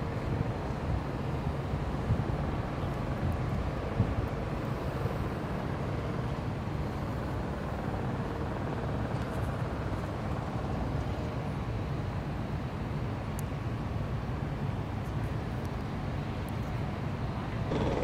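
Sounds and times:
distant city traffic: 0:06.7 - 0:18.0.

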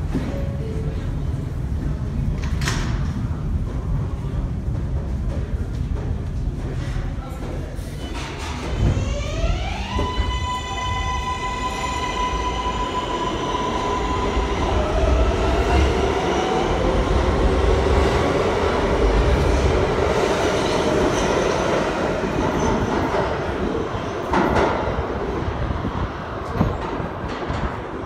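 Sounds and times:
subway train accelerating: 0:00.0 - 0:28.0
train cars clattering on rails: 0:26.4 - 0:28.0.

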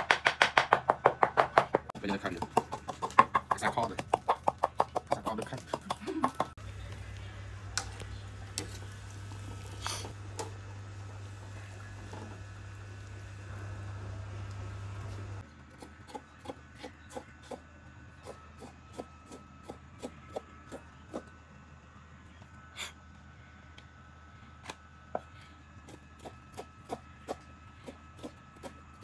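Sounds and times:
cleaver chopping on wooden board: 0:00.0 - 0:06.5.

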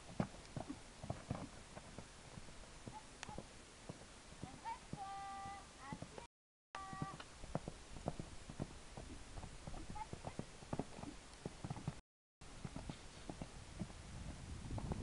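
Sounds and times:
horse hooves thudding on sand: 0:00.0 - 0:15.0.

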